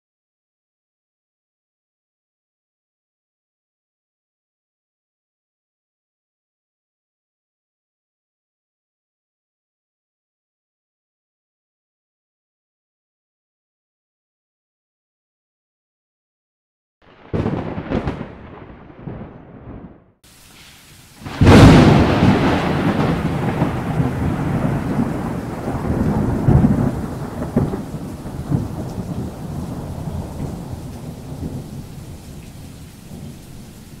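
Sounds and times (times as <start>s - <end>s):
thunder crack and rolling rumble: 17.0s - 20.1s, 21.2s - 33.6s.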